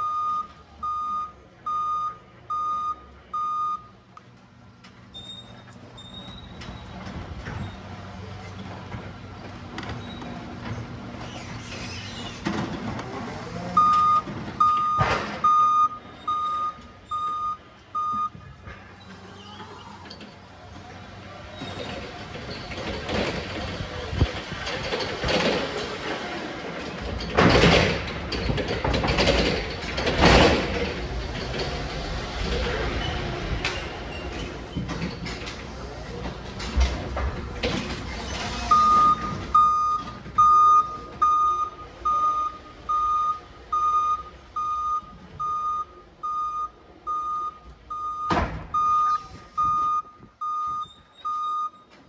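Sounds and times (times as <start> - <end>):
forklift reversing alarm beeping: 0.0 - 4.0, 13.7 - 19.1, 38.3 - 52.0
forklift rattling and clunking: 4.3 - 46.4.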